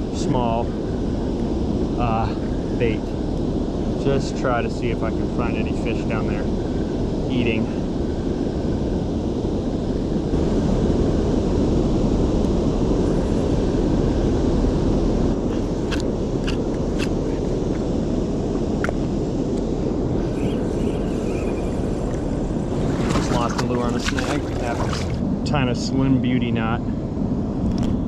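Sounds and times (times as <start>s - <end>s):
water roaring over dam spillway: 20.8s - 26.6s.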